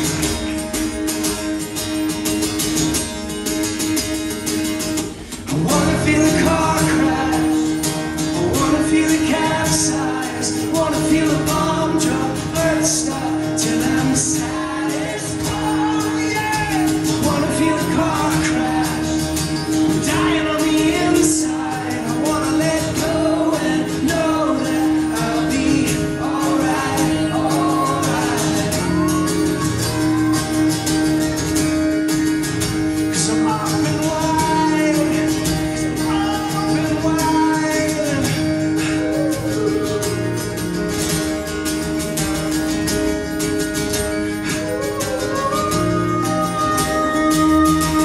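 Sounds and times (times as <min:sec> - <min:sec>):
acoustic guitar strumming: 0:00.0 - 0:48.0
person singing: 0:05.4 - 0:31.5, 0:33.1 - 0:40.8, 0:44.4 - 0:48.0.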